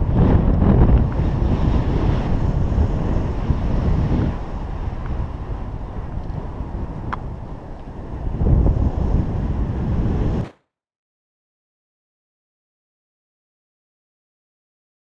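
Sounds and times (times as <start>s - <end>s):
wind buffeting microphone: 0.0s - 10.5s.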